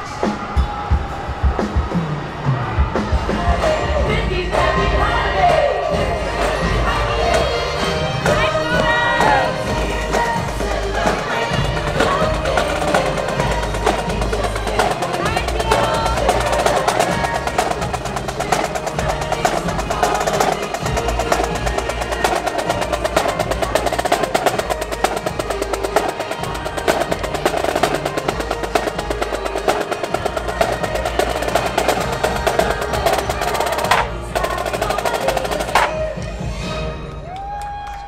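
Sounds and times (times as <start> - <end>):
festive parade music: 2.2 - 37.2
marching snare drums: 8.3 - 36.1.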